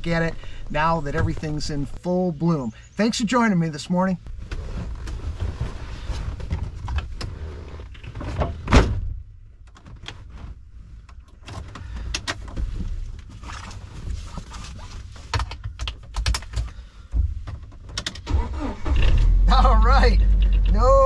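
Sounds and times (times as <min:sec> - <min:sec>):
seat rustling and knocks: 0:04.3 - 0:09.2.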